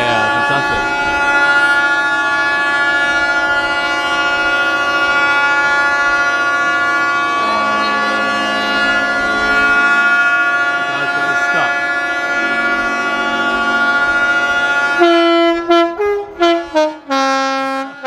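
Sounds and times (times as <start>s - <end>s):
lower horn blowing: 0.0s - 18.0s
ship horns blowing a chord: 0.0s - 18.0s.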